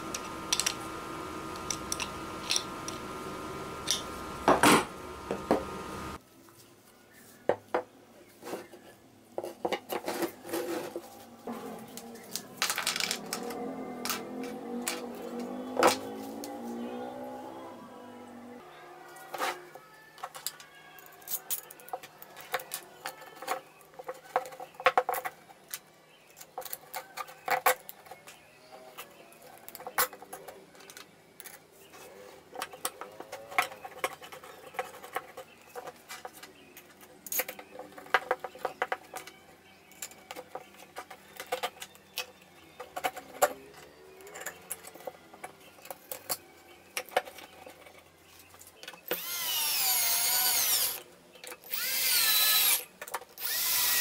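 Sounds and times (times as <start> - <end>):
wooden parts clicking and knocking: 0.0 - 3.2, 32.5 - 54.0
cordless drill whine: 0.0 - 6.2, 49.1 - 51.0, 51.7 - 52.8, 53.4 - 54.0.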